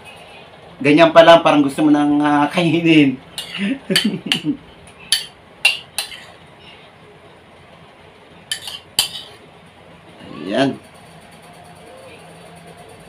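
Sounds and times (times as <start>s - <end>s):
spoon clinking on ceramic bowl: 5.1s - 6.3s, 8.5s - 9.4s.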